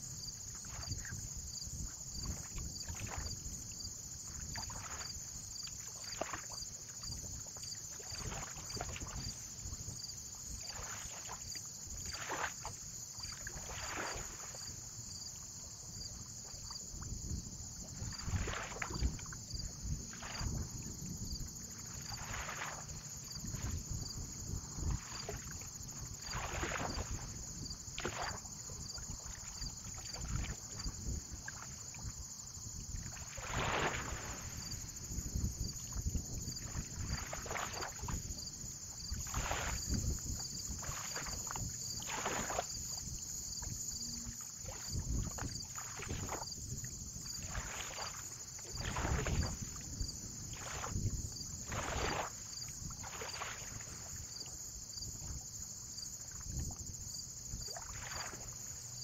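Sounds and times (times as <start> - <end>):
water lapping and splashing: 0.0 - 59.0
wind rumble on microphone: 0.0 - 59.0.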